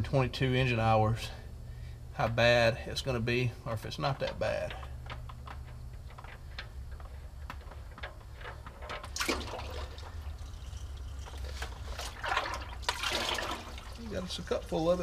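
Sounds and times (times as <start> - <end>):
steady low hum: 0.0 - 15.0
oil pouring into plastic cup: 9.1 - 14.1
oil splash: 9.1 - 14.4.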